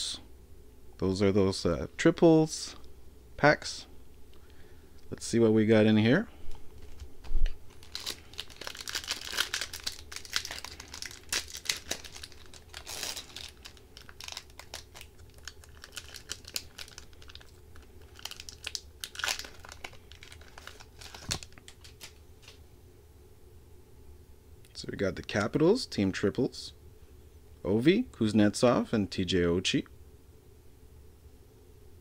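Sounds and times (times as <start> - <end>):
foil wrapper crinkling and tearing: 6.7 - 22.6.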